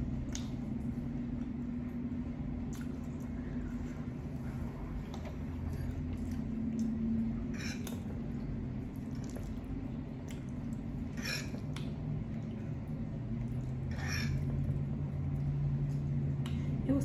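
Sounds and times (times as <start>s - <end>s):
steady low hum: 0.0s - 17.0s
wet chewing: 2.6s - 3.5s, 8.8s - 16.6s.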